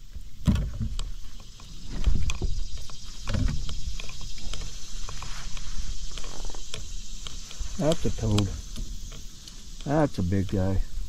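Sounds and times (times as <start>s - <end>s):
steady hiss: 0.0s - 11.0s
dull thumps on plastic deck: 0.4s - 1.2s
light clicking rattles: 0.7s - 10.8s.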